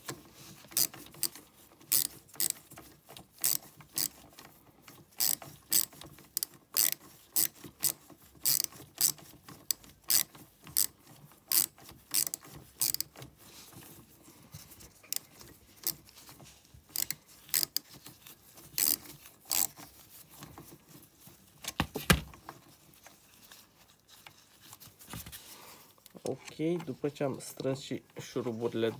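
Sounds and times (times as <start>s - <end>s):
ratchet wrench clicking: 0.8s - 2.6s, 3.4s - 4.2s, 5.2s - 9.2s, 10.0s - 10.9s, 11.5s - 13.1s, 16.9s - 17.8s, 18.8s - 19.7s.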